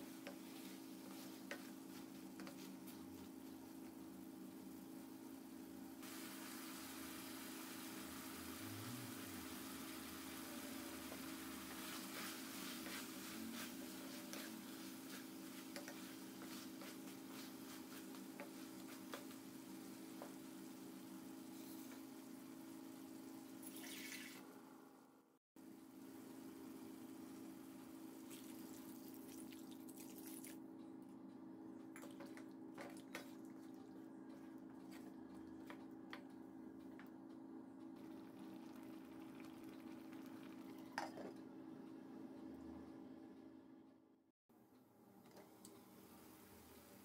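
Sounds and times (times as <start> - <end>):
faint sizzle: 0.0 - 25.1, 38.0 - 43.2, 45.2 - 47.0
water hissing in hot pan: 6.0 - 15.2.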